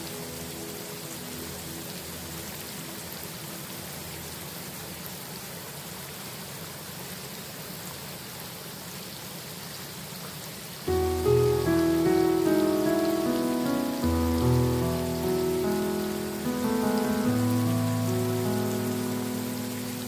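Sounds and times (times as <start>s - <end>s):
piano notes: 0.0s - 3.7s, 10.9s - 20.0s
steady rain falling: 0.0s - 20.0s.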